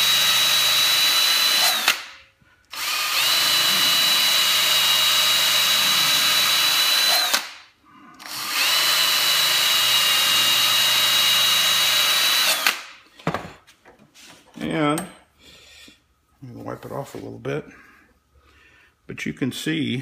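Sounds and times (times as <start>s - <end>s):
drill sanding steel: 0.0s - 2.1s, 2.7s - 7.6s, 8.3s - 12.7s.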